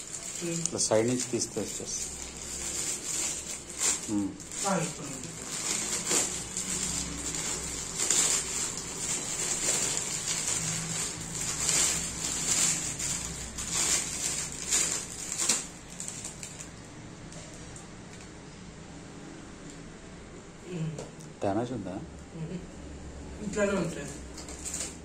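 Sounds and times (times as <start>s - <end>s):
plastic bag crinkling: 0.0s - 16.8s, 24.3s - 25.0s.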